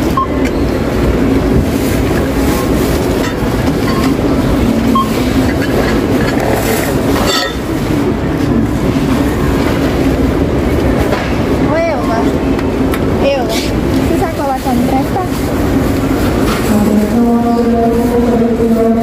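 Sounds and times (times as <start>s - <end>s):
low hum of large hall: 0.0s - 19.0s
short beeps: 0.1s - 0.6s, 4.9s - 5.3s
murmur of voices: 0.8s - 19.0s.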